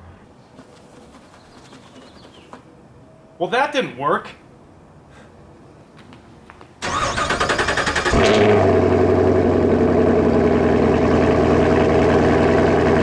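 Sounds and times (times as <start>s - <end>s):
vehicle engine cranking and idling: 6.8s - 13.0s.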